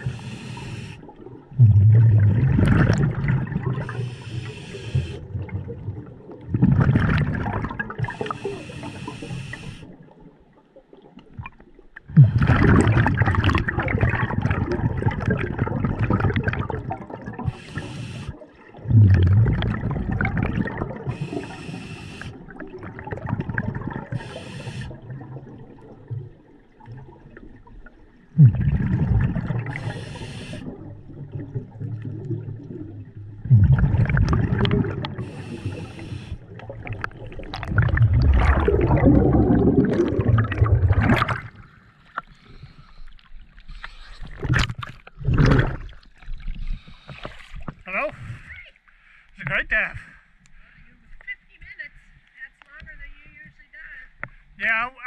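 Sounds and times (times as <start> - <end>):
regulator air hiss: 0.0 - 1.0, 3.9 - 5.2, 8.2 - 9.9, 17.6 - 18.4, 21.2 - 22.4, 24.2 - 25.0, 29.8 - 30.7, 35.2 - 36.4
exhaled bubbles rushing underwater: 0.0 - 47.8.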